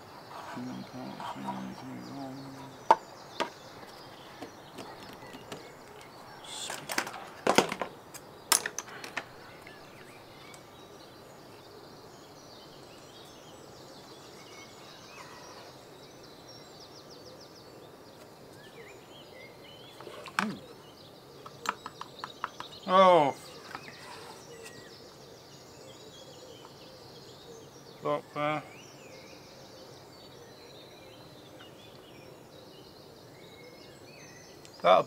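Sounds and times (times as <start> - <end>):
low background hiss: 0.0 - 4.8, 5.4 - 35.0
plastic parts clicking and knocking: 6.7 - 7.9, 8.5 - 9.4.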